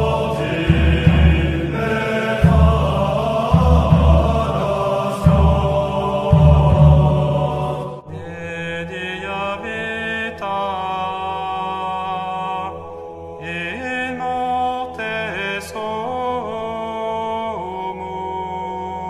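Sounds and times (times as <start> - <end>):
steady low hum: 0.0 - 8.0
person singing plainchant: 0.0 - 11.4.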